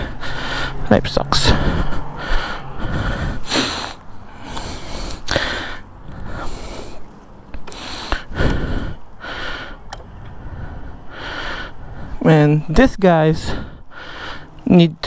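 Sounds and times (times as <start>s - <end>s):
person breathing huffs and sniffs: 1.5s - 12.2s.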